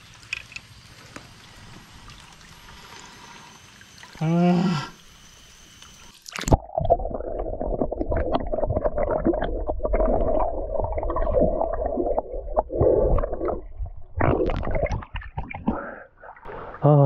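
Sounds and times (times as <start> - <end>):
muffled underwater water and bubbles: 0.0 - 17.0
small clicks and knocks: 0.2 - 1.3
splash: 16.4 - 17.0.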